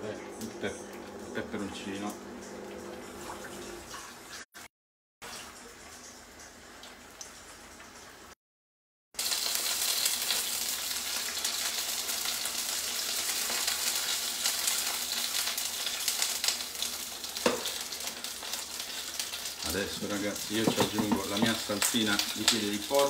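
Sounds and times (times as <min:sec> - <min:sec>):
food sizzling in oil: 0:09.2 - 0:23.0.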